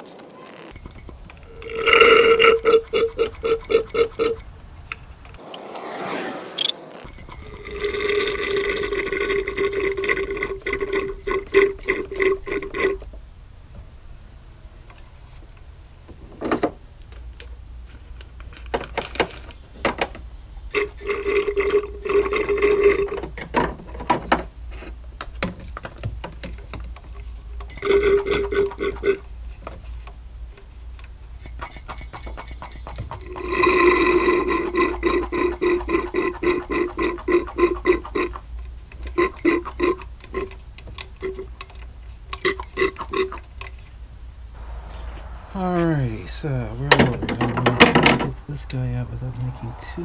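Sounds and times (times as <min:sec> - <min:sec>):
pump buzzing hum: 0:00.7 - 0:04.4
liquid gurgling: 0:07.1 - 0:13.0.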